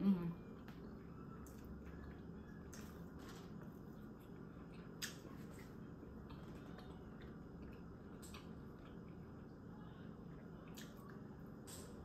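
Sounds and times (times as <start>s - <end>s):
faint room hum: 0.0s - 12.0s
soft chewing: 0.1s - 12.0s.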